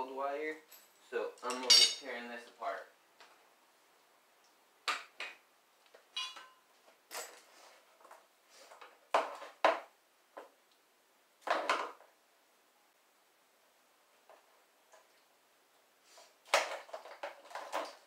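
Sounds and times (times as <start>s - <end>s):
plastic and metal parts rattling: 16.5s - 18.0s.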